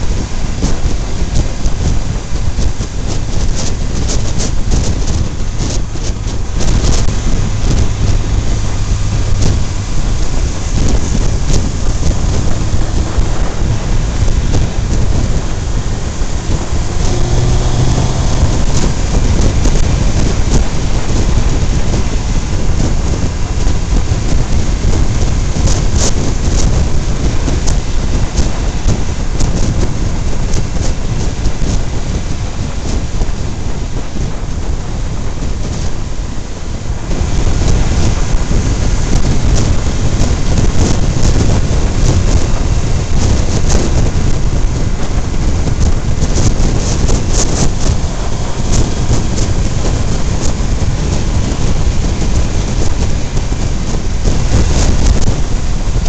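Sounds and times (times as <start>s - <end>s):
faint engine hum: 0.0s - 56.0s
wind buffeting microphone: 0.0s - 56.0s.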